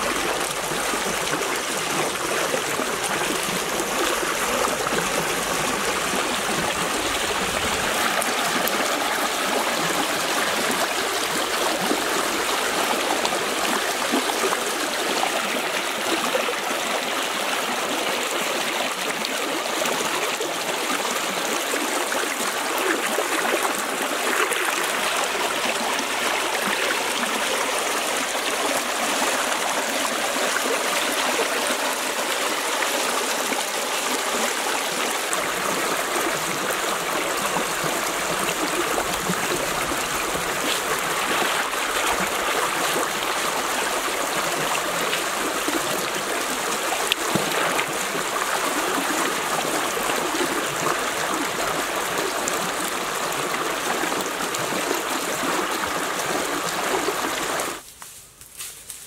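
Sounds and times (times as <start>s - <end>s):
stream rushing over stones: 0.0s - 57.8s
small water splashes: 34.9s - 57.8s.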